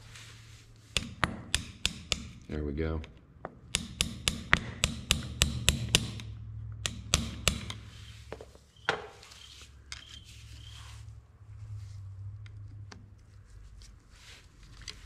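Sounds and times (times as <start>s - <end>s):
hammer tapping metal: 0.9s - 2.5s, 3.4s - 9.2s.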